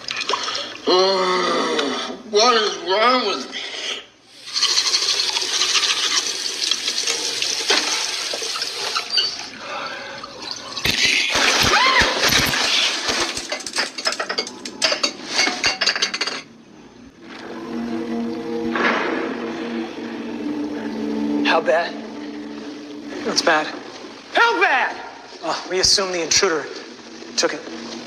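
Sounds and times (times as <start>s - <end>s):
low droning hum: 16.5s - 24.4s
water rushing and splashing: 17.2s - 28.0s.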